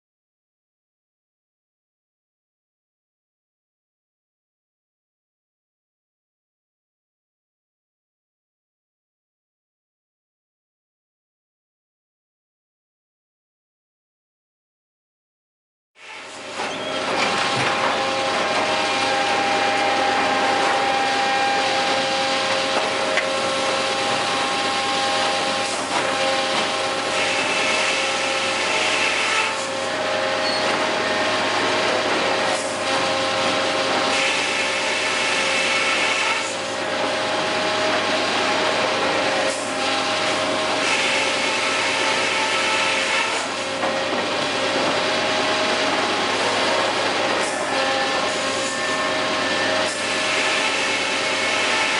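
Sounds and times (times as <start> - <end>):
circle saws whining: 16.0 - 51.9
saw cutting wood hiss: 26.7 - 29.7, 47.4 - 51.9.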